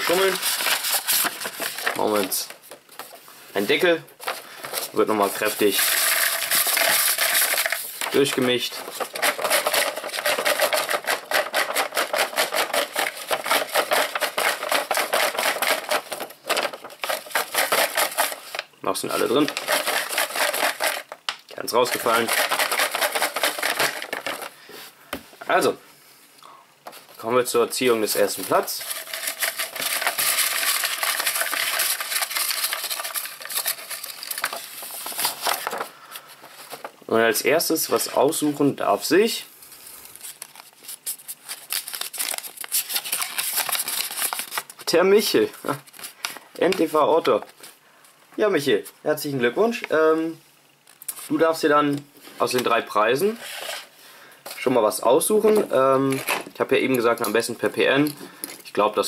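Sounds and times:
paper rattling in plastic bowl: 0.0 - 3.0, 4.2 - 24.6, 27.9 - 36.9, 40.2 - 44.9.

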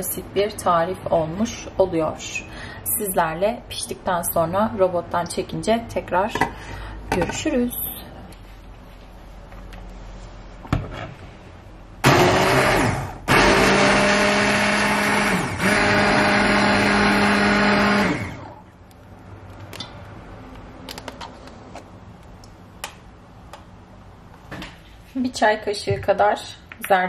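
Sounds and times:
immersion blender motor: 12.0 - 18.6.

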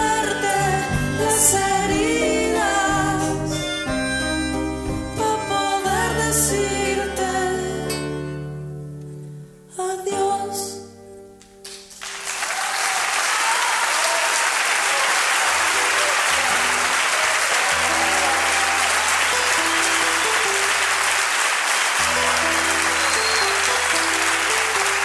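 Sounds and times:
audience applause: 11.7 - 25.0.

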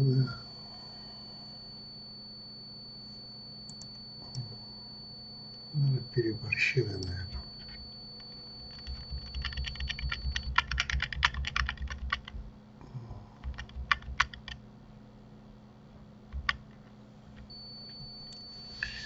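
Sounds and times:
computer keyboard typing: 7.0 - 12.4, 13.4 - 14.6, 16.3 - 16.7.

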